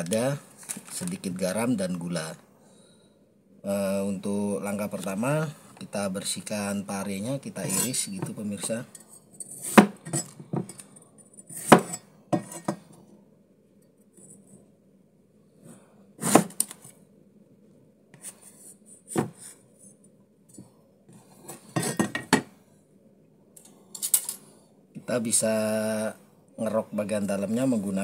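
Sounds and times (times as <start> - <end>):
cleaver chopping on cutting board: 16.2 - 16.6.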